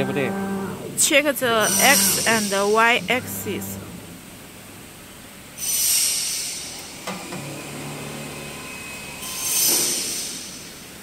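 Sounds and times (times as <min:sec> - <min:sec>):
motor hissing whine: 0:00.0 - 0:04.3
low motor hum: 0:00.0 - 0:04.9.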